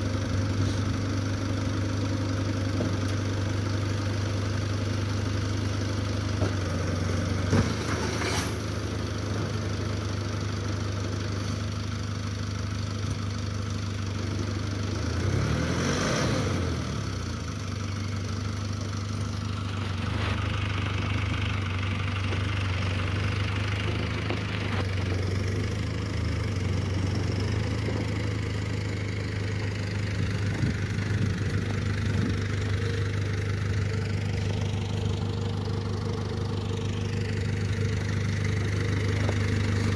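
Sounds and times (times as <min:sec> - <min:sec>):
diesel truck engine idling: 0:00.0 - 0:39.9
snow sliding out of truck body: 0:07.3 - 0:08.8.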